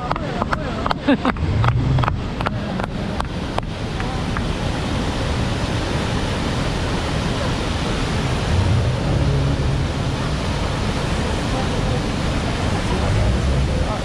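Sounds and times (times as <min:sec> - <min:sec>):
churning river: 0:00.0 - 0:14.0
waterfall roaring: 0:00.0 - 0:14.0
low hum: 0:01.3 - 0:02.9, 0:07.4 - 0:14.0.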